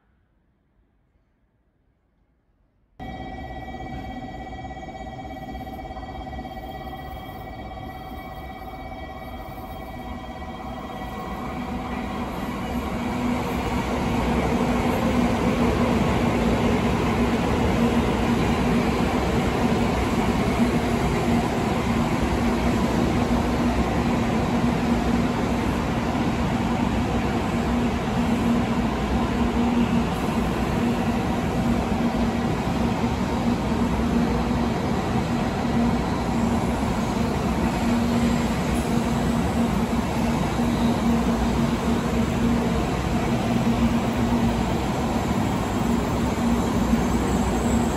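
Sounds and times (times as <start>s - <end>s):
train wheels rumbling on tracks: 10.9s - 47.9s.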